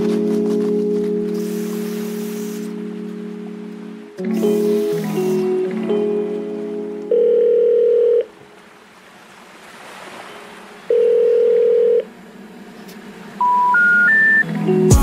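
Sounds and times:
low telephone beeps: 7.1 - 8.3, 10.9 - 12.0, 13.4 - 14.5
short rising telephone beeps: 13.4 - 14.4.

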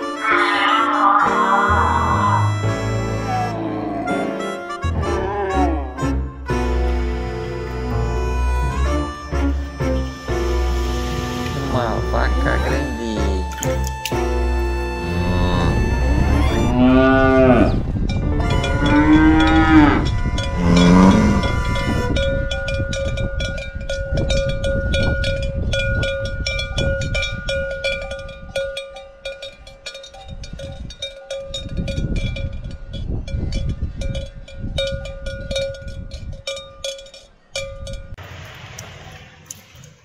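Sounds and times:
cattle mooing: 0.0 - 6.2, 15.0 - 17.8, 18.5 - 21.9
cowbells clanking: 15.1 - 38.2.

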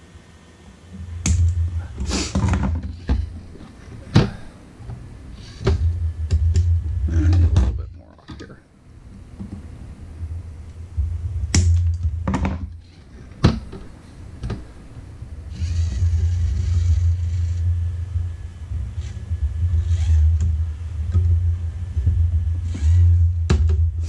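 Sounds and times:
low rumble: 4.7 - 8.2, 9.7 - 13.3, 14.1 - 24.0.

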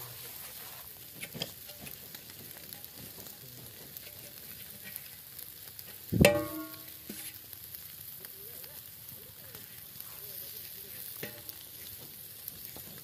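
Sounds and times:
charcoal fire crackling: 0.0 - 13.0
fish sizzling on a grill: 0.0 - 13.0
loud ringing knock: 6.2 - 6.8.

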